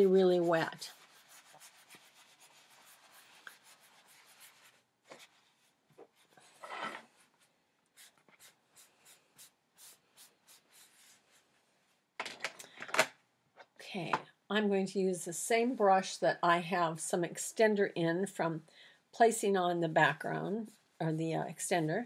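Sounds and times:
paper towel rubbing wet surface: 0:00.0 - 0:06.6.

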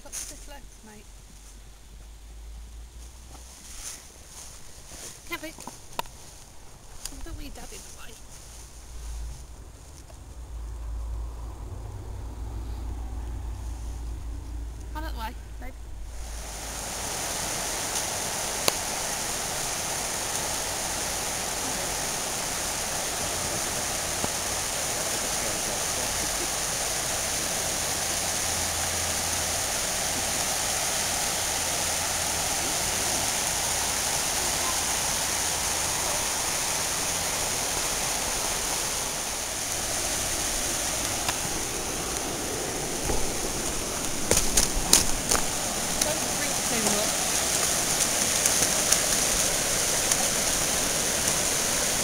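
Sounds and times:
river rushing over rocks: 0:15.8 - 0:52.0.

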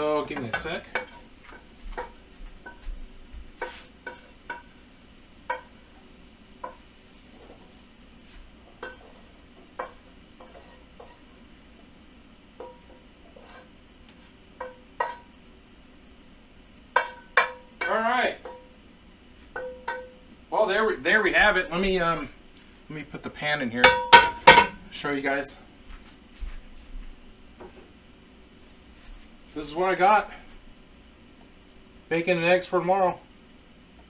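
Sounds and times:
wooden spoon scraping a frying pan: 0:03.5 - 0:04.7, 0:05.5 - 0:11.3, 0:12.6 - 0:15.3.

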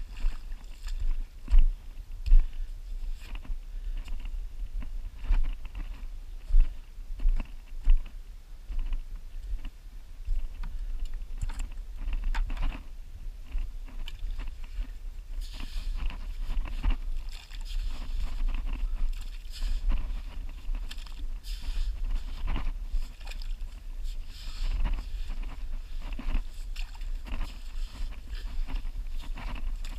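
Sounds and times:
wind rumble on microphone: 0:00.0 - 0:29.9
shovel digging wet sand: 0:19.2 - 0:25.2.

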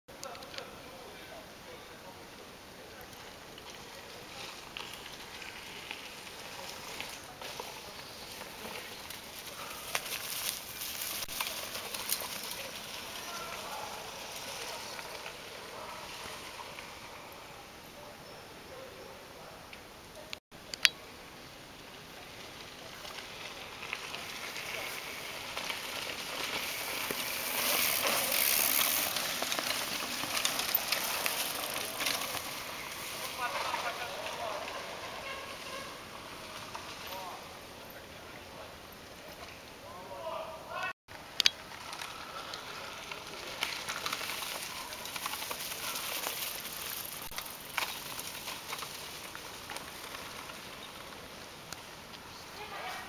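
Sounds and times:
bike tyres crackling over leaves: 0:00.2 - 0:18.4, 0:20.1 - 0:53.0
sharp clicks: 0:20.7 - 0:21.0.

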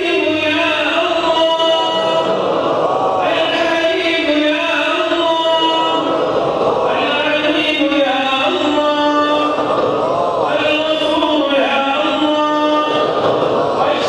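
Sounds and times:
man chanting: 0:00.0 - 0:14.0.

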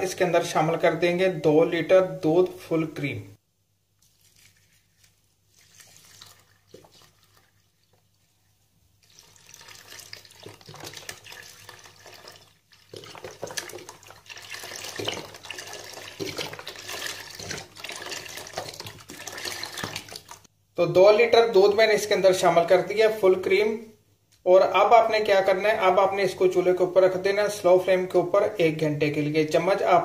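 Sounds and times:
milk pouring into a pan: 0:04.0 - 0:08.3, 0:09.0 - 0:20.5.

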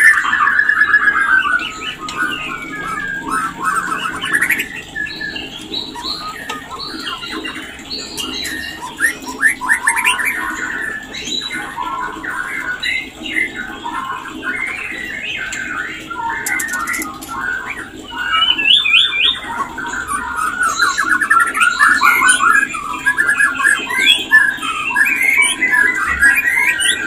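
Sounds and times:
bird song whistles and chatter: 0:00.0 - 0:27.0.

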